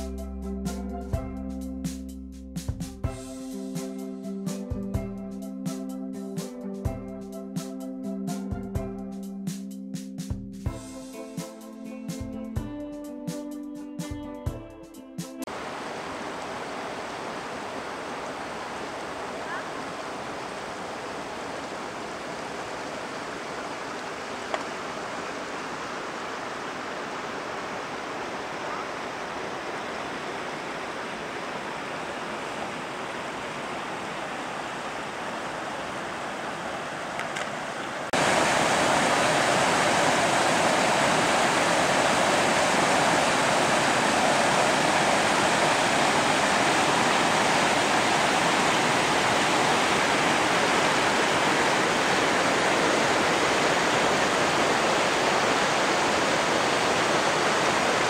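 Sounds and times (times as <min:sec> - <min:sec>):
steady rushing noise: 0:38.1 - 0:58.0.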